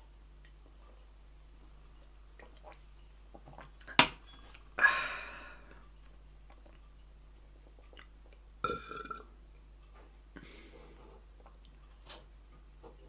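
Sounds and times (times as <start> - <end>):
breathy exhale sigh: 4.8 - 5.7.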